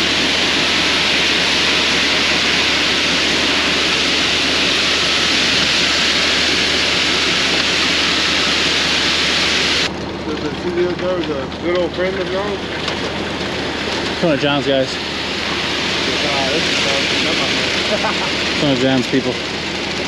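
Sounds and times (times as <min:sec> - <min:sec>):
diesel engine humming: 0:00.0 - 0:20.0
wet concrete rushing down chute: 0:00.0 - 0:20.0.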